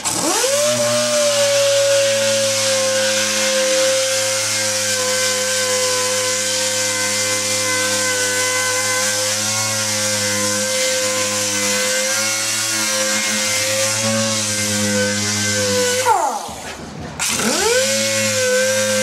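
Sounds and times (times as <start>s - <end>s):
pneumatic sander whining: 0.0s - 19.0s.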